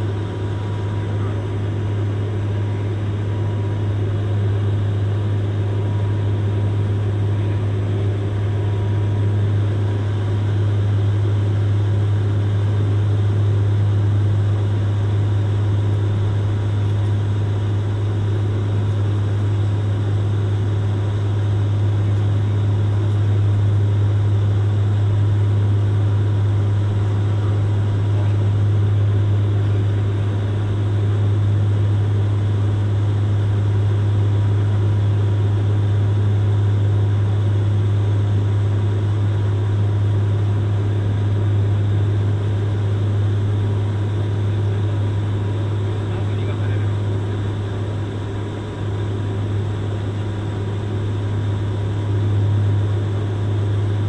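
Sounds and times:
engine and airflow noise: 0.0 - 54.0
loud low propeller drone: 0.0 - 54.0.

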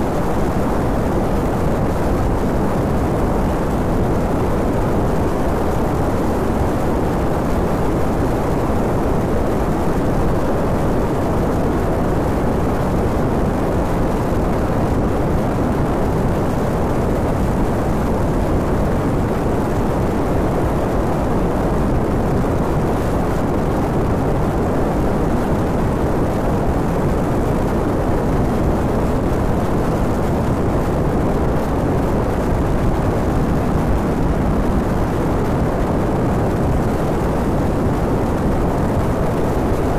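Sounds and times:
wind noise on microphone: 0.0 - 39.9.

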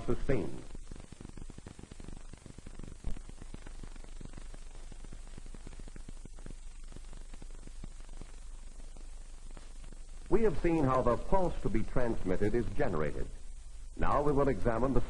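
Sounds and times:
person narrating: 0.0 - 0.7, 10.3 - 13.4, 14.0 - 15.0
crackling clicks: 0.0 - 15.0
old film soundtrack hiss: 0.0 - 15.0
steady low hum: 0.0 - 15.0.

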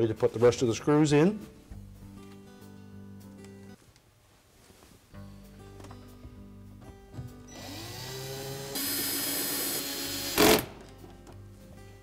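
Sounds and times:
cordless drill motor whine: 7.5 - 10.6.

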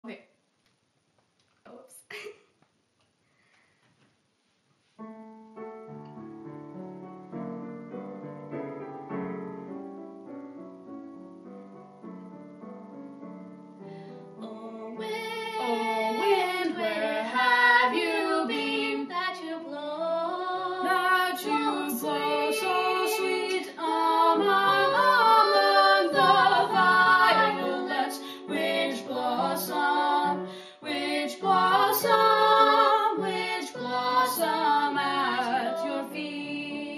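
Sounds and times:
piano: 4.9 - 36.9
girl and boy singing duet: 14.3 - 36.9.

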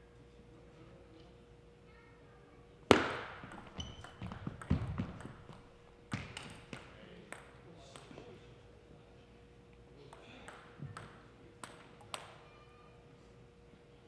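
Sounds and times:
table tennis ball hit: 2.9 - 8.1, 10.1 - 12.4
ball clicking on paddles and table: 2.9 - 8.2, 10.1 - 12.4
shoes squeaking on gym floor: 3.5 - 6.5.

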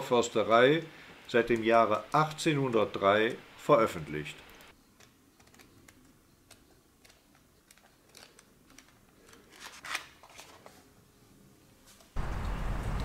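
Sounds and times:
book pages flicking and rustling: 7.0 - 10.9.

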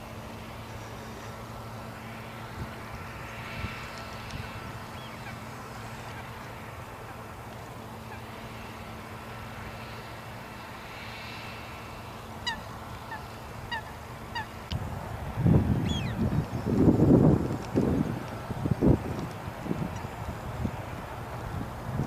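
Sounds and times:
steady low hum: 0.0 - 22.0
goose honking: 12.4 - 14.6.

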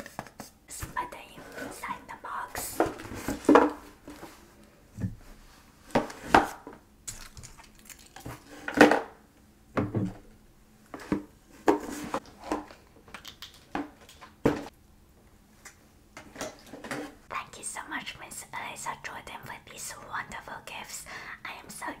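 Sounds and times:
scrapes and rustles: 11.0 - 12.8.

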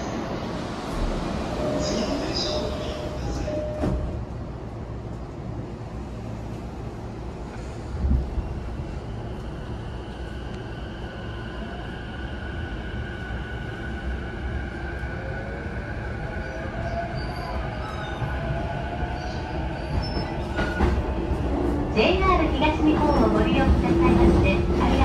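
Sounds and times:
train wheels rumbling on rails: 16.2 - 25.0.

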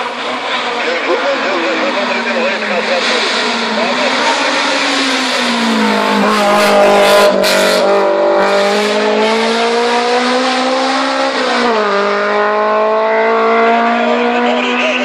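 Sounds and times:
race car engine at high revs: 0.0 - 15.0.

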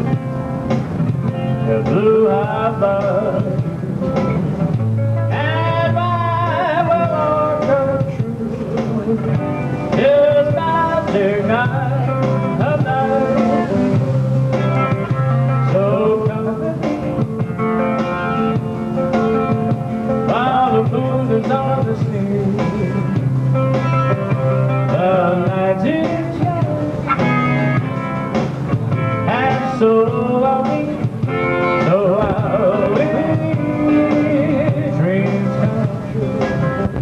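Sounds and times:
guitar accompaniment: 0.0 - 37.0
steady bass line: 0.0 - 37.0
man singing into a microphone: 1.6 - 3.9, 5.3 - 13.8, 15.6 - 17.3, 20.2 - 23.3, 24.9 - 27.3, 29.2 - 37.0.

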